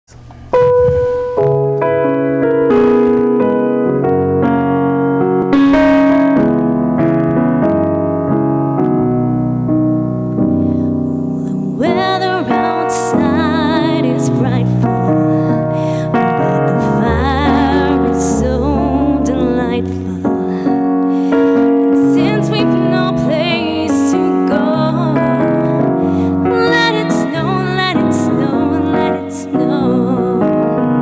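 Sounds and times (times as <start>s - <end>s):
electric keyboard sustained chords: 0.2s - 31.0s
woman singing with vibrato: 11.4s - 20.7s, 21.8s - 30.9s.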